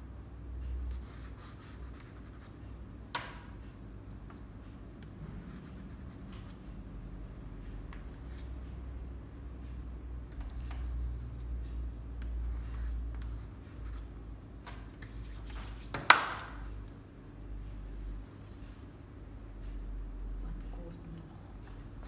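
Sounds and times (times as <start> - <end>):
pastel stick scratching on paper: 0.9 - 2.6, 5.4 - 6.6, 15.0 - 16.1.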